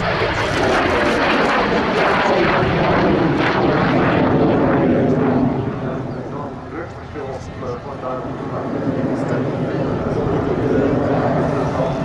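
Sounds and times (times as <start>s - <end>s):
jet engine rush: 0.0s - 12.0s.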